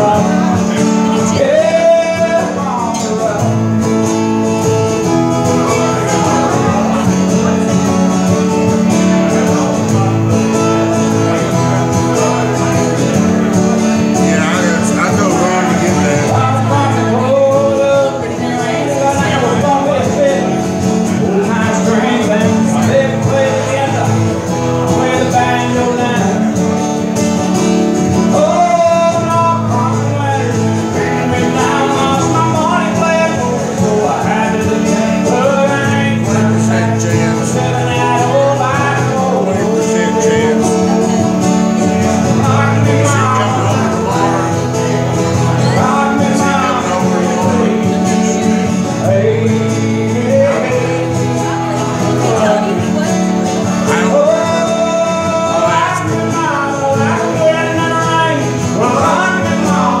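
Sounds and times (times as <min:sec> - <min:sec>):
person singing: 0:00.0 - 1:00.0
strummed acoustic guitar: 0:00.0 - 1:00.0.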